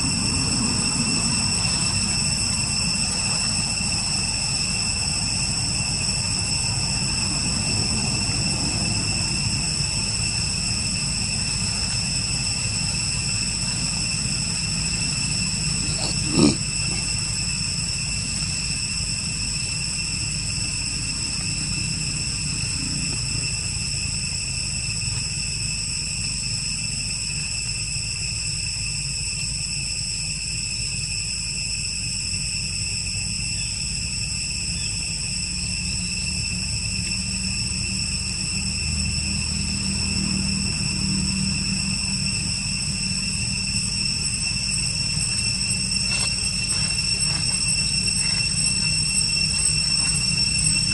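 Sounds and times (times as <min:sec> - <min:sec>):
high-pitched insect drone: 0:00.0 - 0:50.9
low background rumble: 0:37.6 - 0:50.9.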